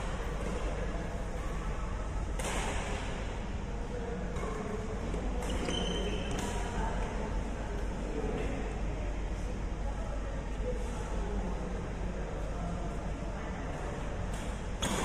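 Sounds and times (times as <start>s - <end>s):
steady low hum: 0.0s - 15.0s
rackets hitting shuttlecock: 2.3s - 3.2s, 14.3s - 15.0s.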